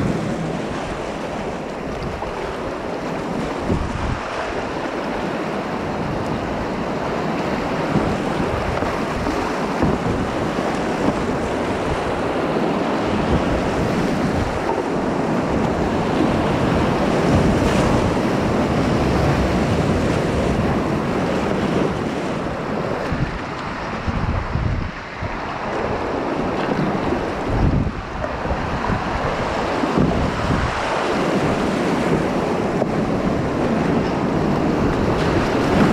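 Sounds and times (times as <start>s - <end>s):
rushing whitewater: 0.0s - 35.9s
water washing around boat: 0.0s - 35.9s.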